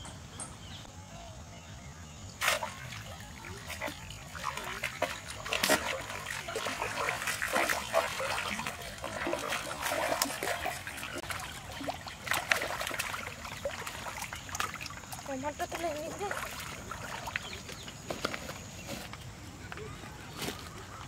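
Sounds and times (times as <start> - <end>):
fish splashing in water: 2.4 - 18.2.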